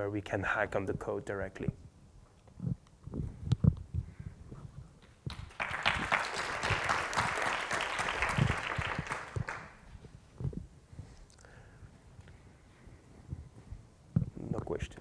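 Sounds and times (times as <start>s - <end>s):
audience applause: 5.3s - 9.8s.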